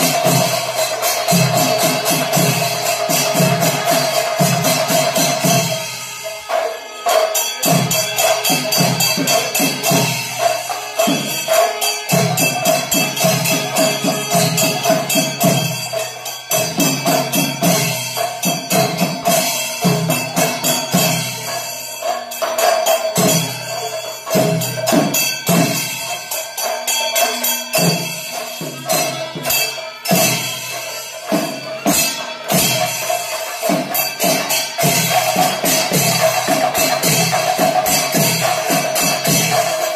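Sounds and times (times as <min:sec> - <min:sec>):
drums in fast dense rhythm: 0:00.0 - 0:39.9
hand cymbals clashing: 0:00.0 - 0:39.9.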